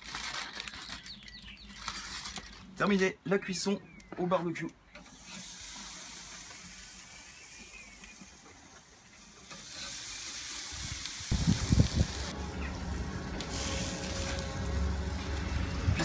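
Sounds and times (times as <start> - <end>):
patties sizzling on a grill: 5.0 - 16.0.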